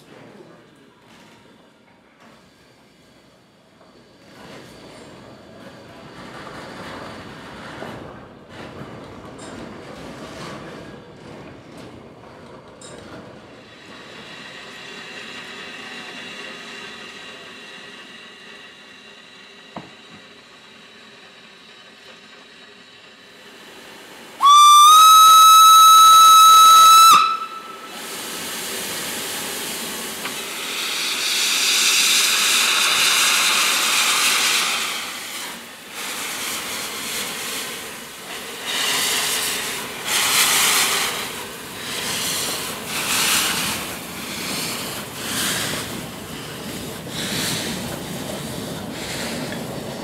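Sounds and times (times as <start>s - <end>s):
steam hissing: 13.6s - 50.0s
steam whistle blast: 24.4s - 28.1s.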